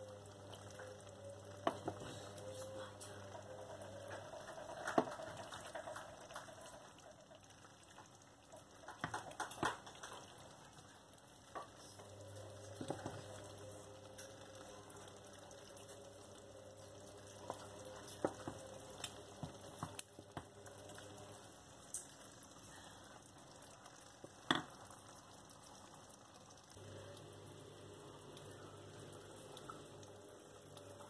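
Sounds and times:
wooden spoon knocking on pot: 0:18.2 - 0:18.7, 0:24.2 - 0:24.8
steady low hum: 0:26.8 - 0:31.0.

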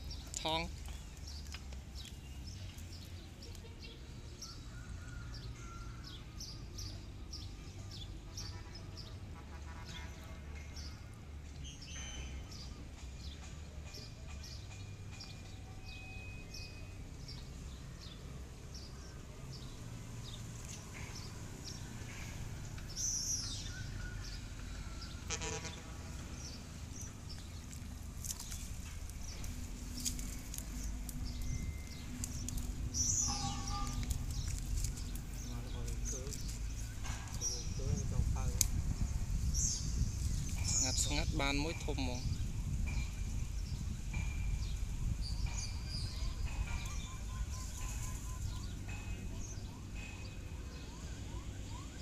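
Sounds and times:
birds chirping and calling: 0:11.6 - 0:51.9
steady low rumble: 0:25.8 - 0:41.4.

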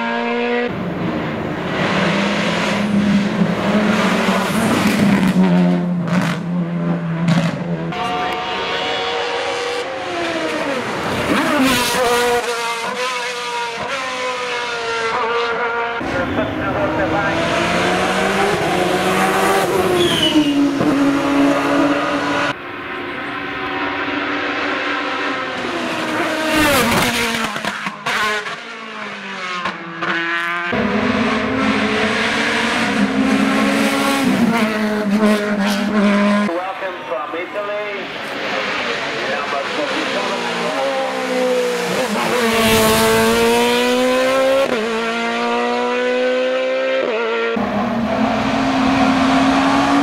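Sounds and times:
racing car engine accelerating past: 0:00.0 - 0:27.6, 0:38.4 - 0:50.0.

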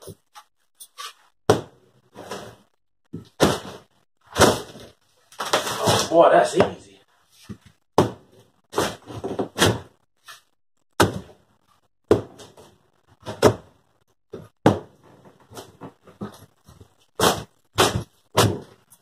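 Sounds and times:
wood cracking: 0:04.3 - 0:06.2.

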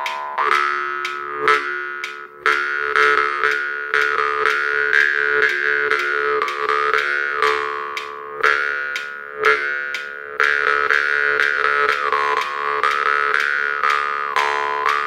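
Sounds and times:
jaw harp twanging: 0:00.0 - 0:15.0.

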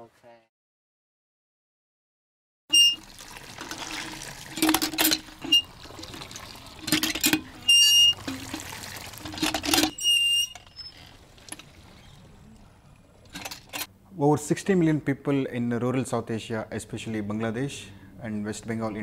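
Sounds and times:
water gushing from pump spout: 0:02.8 - 0:12.4
pump handle squeaking: 0:03.7 - 0:12.4, 0:13.2 - 0:13.9.

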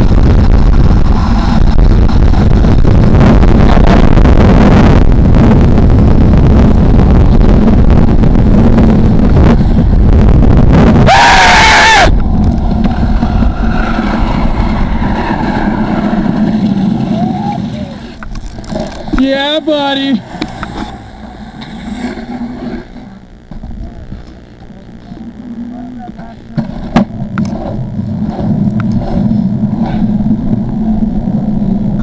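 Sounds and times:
wind buffeting microphone: 0:00.0 - 0:19.4
skateboard wheels roaring on asphalt: 0:00.0 - 0:24.0, 0:26.0 - 0:32.0
high-pitched squeal: 0:10.9 - 0:18.2.

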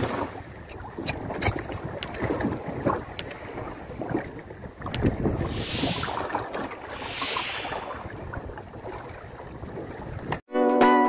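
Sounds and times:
water against boat: 0:00.0 - 0:10.4
wind on microphone: 0:00.0 - 0:10.4
brief hiss: 0:05.4 - 0:08.1.

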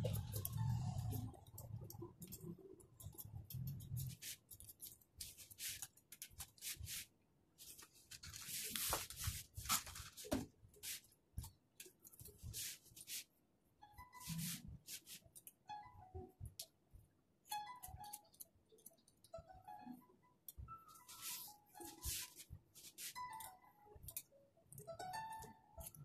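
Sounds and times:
scissors snipping hair: 0:00.0 - 0:06.8, 0:20.5 - 0:26.0.

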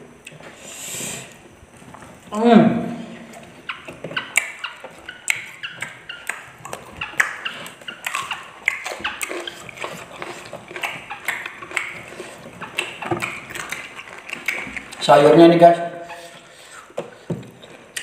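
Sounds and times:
wet chewing and lip smacks: 0:03.3 - 0:15.1.

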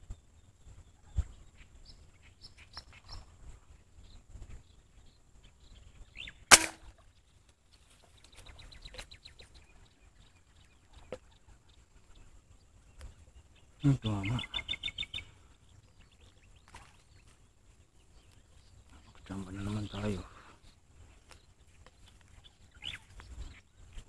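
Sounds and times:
birds chirping: 0:00.1 - 0:24.0
airgun shot: 0:06.5 - 0:06.9.

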